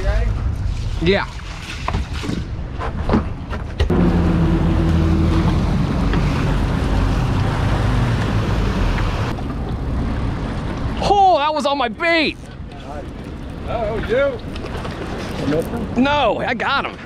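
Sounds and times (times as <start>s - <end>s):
outboard motors droning: 3.9s - 11.0s
churning wake wash: 4.0s - 12.2s.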